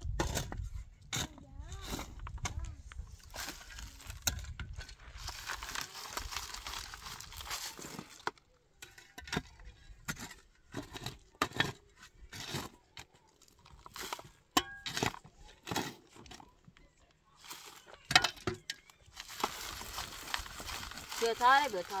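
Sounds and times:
rustling and crinkling: 1.8 - 8.5, 18.8 - 22.0.

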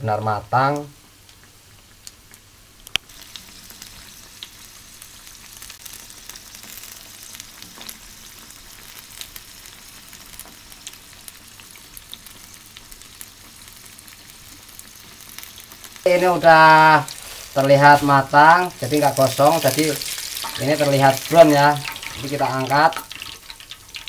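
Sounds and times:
oil sizzling and popping: 0.7 - 24.0.

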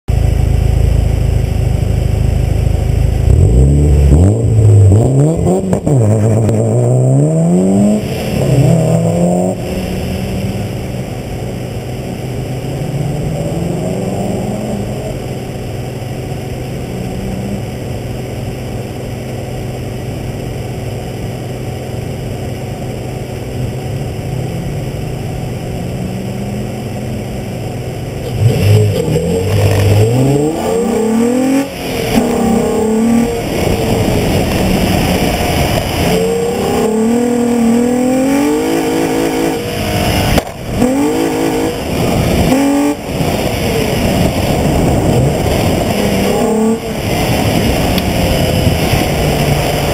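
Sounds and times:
car engine idling and revving: 0.0 - 49.9.

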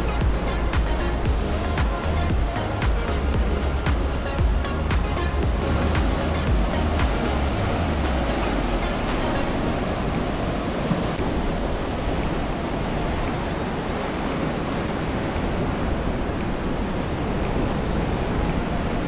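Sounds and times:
wind rumbling on microphone: 0.0 - 19.0
waves breaking on rocky shore: 4.4 - 19.0.

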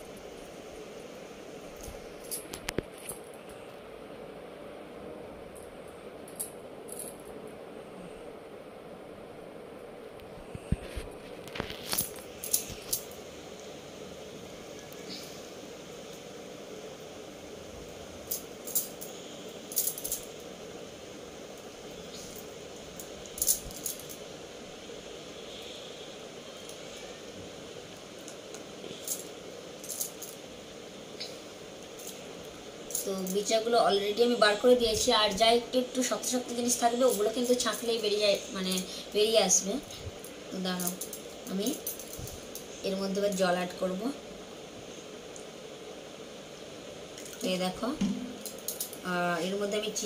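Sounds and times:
steady background hum: 0.0 - 50.0
bangles clinking: 11.9 - 13.2, 18.2 - 20.5, 21.5 - 24.3, 28.2 - 30.5, 31.8 - 33.6, 40.2 - 43.6, 48.3 - 49.0.

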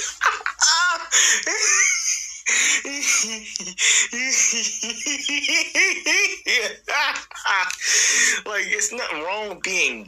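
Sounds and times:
person talking: 2.6 - 10.0.

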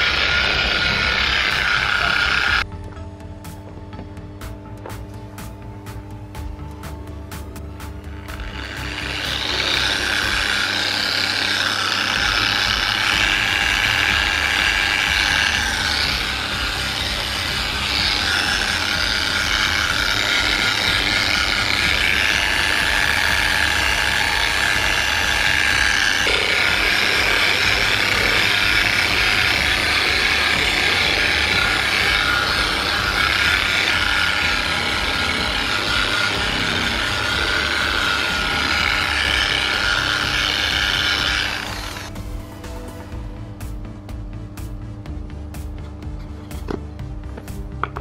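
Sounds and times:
polishing machine whining: 0.0 - 2.7, 8.0 - 42.2.

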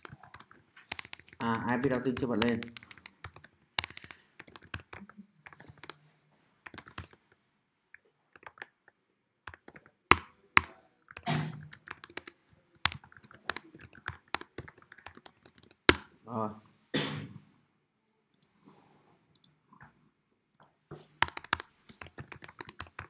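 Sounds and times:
computer keyboard typing: 0.0 - 6.0, 6.6 - 7.3, 8.3 - 16.1, 20.6 - 23.0.

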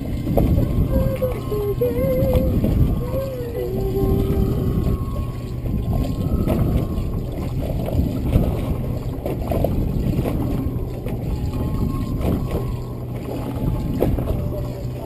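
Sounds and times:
water lapping against boat hull: 0.0 - 15.0
wind on microphone: 0.0 - 15.0.

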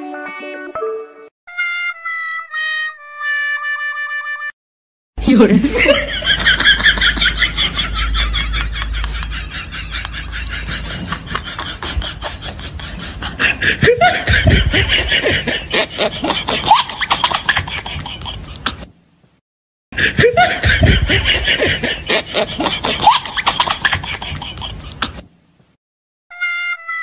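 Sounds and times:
laughter: 5.6 - 18.8, 20.1 - 25.2.

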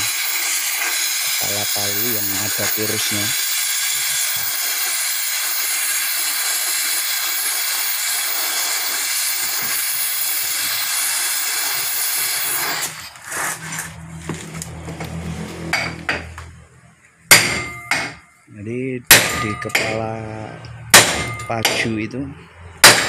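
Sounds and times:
torch flame hissing: 0.0 - 14.0.

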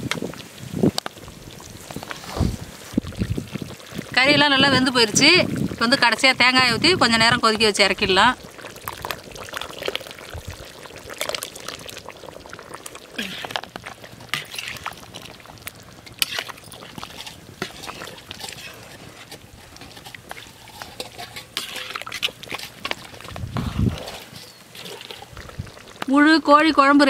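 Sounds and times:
curry bubbling and popping: 0.0 - 27.0
liquid poured into a pot: 7.7 - 26.1.

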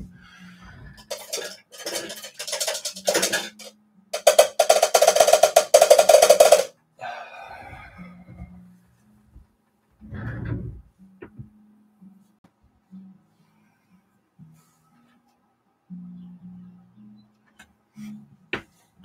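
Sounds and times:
paintbrush rattling in container: 1.0 - 6.7.

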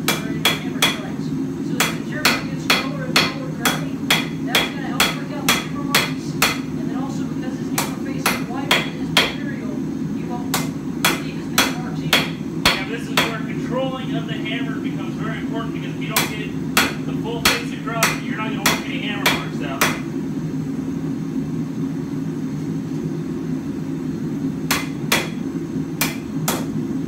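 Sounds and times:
hammer striking steel on anvil: 0.0 - 1.0, 1.8 - 6.7, 7.8 - 9.4, 10.5 - 13.4, 16.2 - 20.0, 24.7 - 25.4, 26.0 - 26.8.

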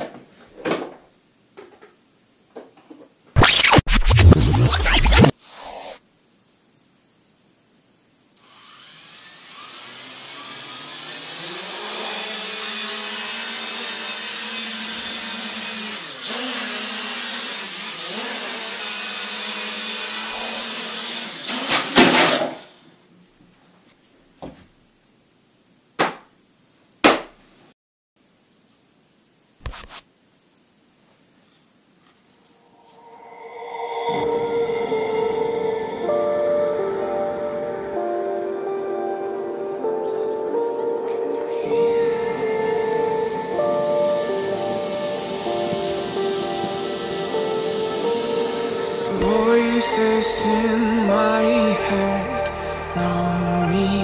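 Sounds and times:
drone motors whining: 3.4 - 5.3, 32.6 - 37.8, 41.6 - 50.7
drone crashing knocks: 32.8 - 37.9.

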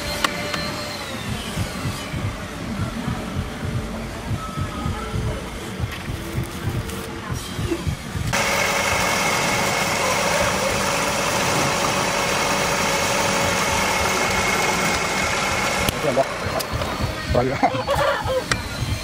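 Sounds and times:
wood lathe motor hum: 8.3 - 17.3.

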